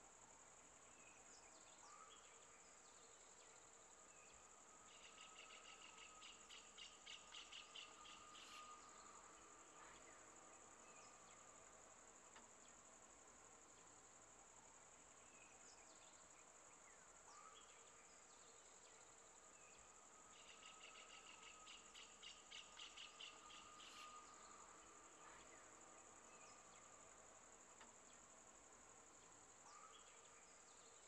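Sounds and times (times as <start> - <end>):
high-pitched insect drone: 4.3 - 11.4, 17.5 - 27.0.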